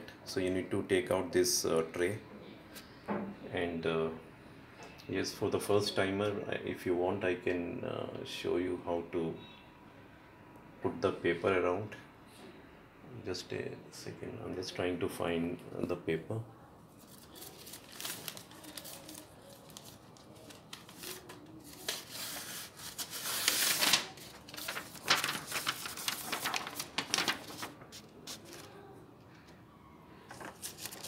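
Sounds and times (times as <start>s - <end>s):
paper rustling: 17.0s - 29.6s, 30.3s - 31.0s.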